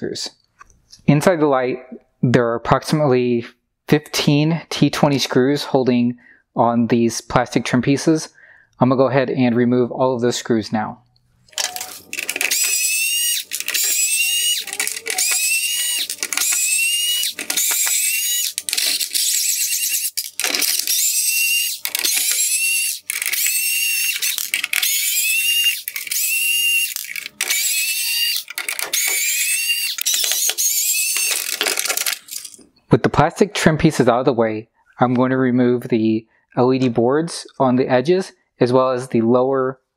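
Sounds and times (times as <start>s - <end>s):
high squeak rising in pitch: 11.5s - 32.6s
screwdriver turning screws: 11.5s - 32.6s.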